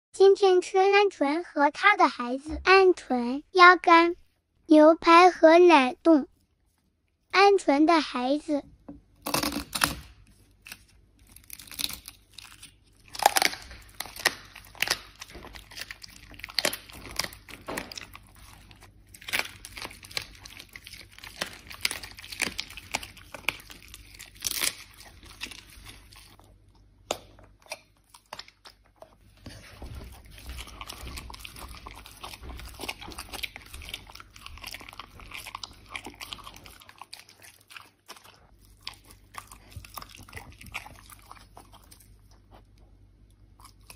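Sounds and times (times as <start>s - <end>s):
bones crunching: 9.2s - 42.2s
dog chewing meat: 13.0s - 26.7s, 27.6s - 43.9s.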